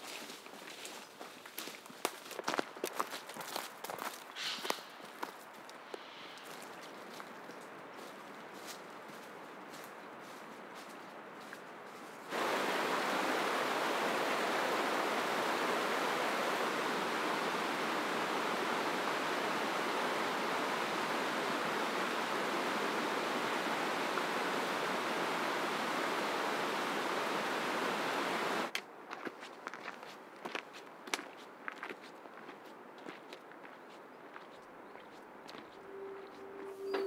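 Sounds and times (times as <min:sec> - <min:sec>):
stream rushing over stones: 0:12.3 - 0:28.7.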